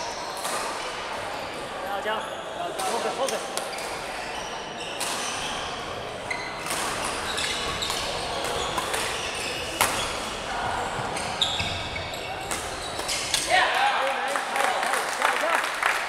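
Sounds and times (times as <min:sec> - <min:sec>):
shoes squeaking on wooden floor: 0:06.2 - 0:13.4
racket hitting shuttlecock: 0:09.8 - 0:10.2.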